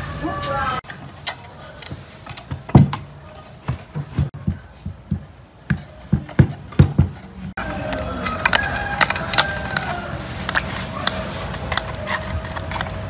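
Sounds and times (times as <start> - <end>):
metal parts clicking and scraping: 0.8 - 3.6, 8.2 - 13.0
metal knocks: 3.7 - 7.6.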